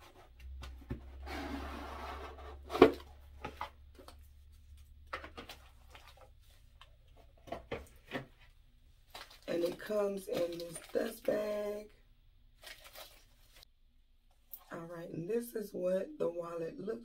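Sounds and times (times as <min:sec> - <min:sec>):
packaging crinkling: 0:09.0 - 0:11.2, 0:12.6 - 0:13.6.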